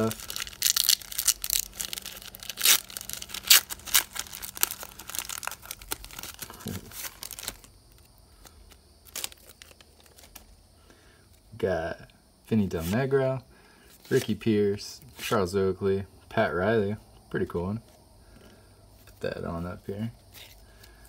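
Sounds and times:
foil wrapper crinkling and ripping: 0:00.0 - 0:10.6.

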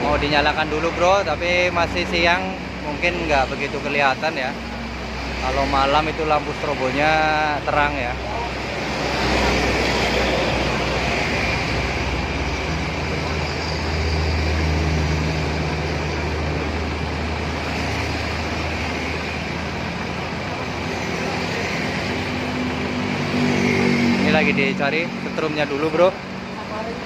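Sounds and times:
diesel truck engine idling: 0:00.0 - 0:23.4, 0:24.2 - 0:27.0.

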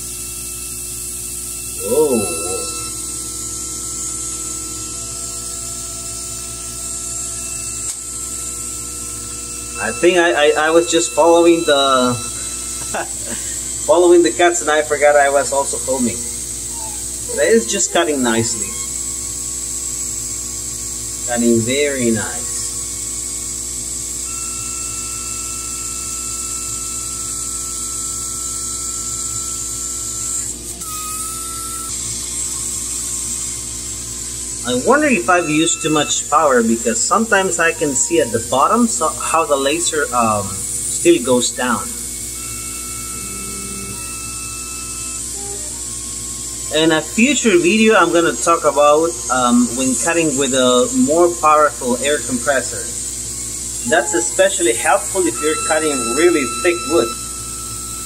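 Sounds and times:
laser cutter machine hum: 0:00.0 - 0:58.0
thin steady whine: 0:00.0 - 0:58.0
air hiss from fans: 0:34.6 - 0:42.0.

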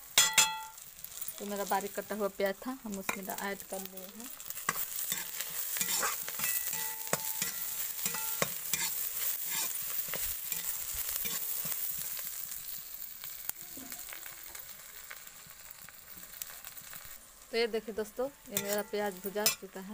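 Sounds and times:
onions sizzling in hot oil: 0:00.0 - 0:19.9
metal spatula scraping a pan: 0:04.4 - 0:12.7, 0:18.5 - 0:19.8.

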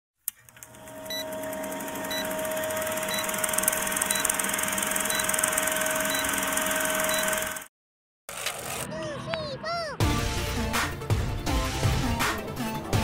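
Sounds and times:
film projector clattering: 0:00.4 - 0:07.7
short high beeps: 0:06.0 - 0:07.4.

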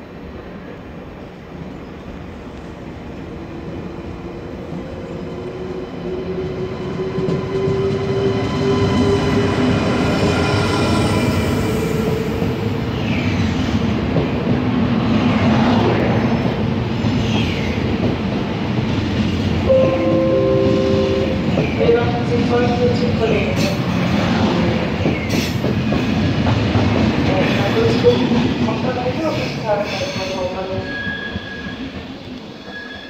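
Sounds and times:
train rumbling past: 0:00.0 - 0:33.0
wheels or brakes squealing: 0:29.9 - 0:33.0.

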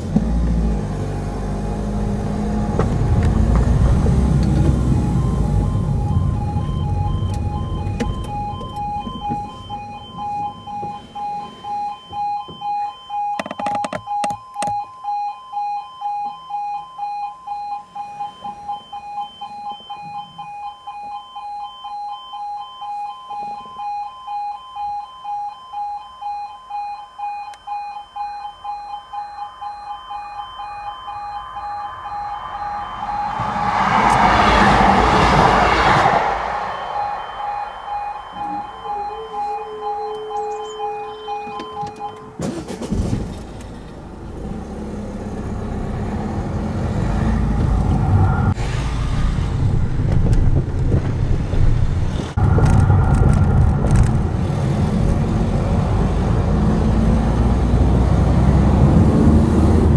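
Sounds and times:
car engine and road noise: 0:00.0 - 0:25.0, 0:26.3 - 0:59.9
level crossing warning alarm: 0:01.4 - 0:48.6.

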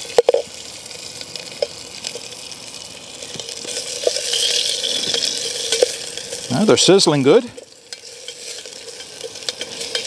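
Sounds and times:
sausages sizzling in oil: 0:00.0 - 0:10.0.

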